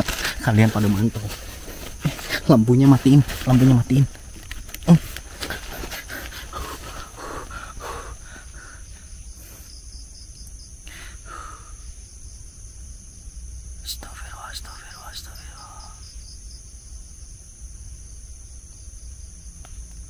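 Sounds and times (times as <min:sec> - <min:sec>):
faint close-by sounds: 0:00.0 - 0:09.6
crickets and insects chirring: 0:00.0 - 0:20.0.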